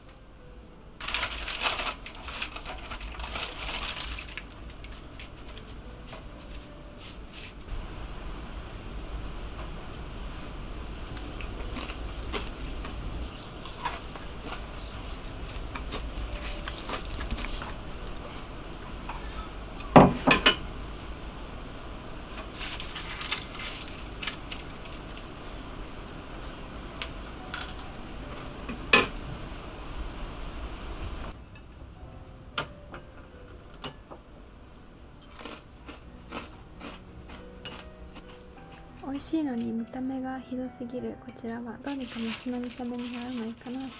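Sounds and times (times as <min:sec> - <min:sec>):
biscuit breaking crackles: 0:01.0 - 0:05.8, 0:22.4 - 0:25.2, 0:41.9 - 0:43.9.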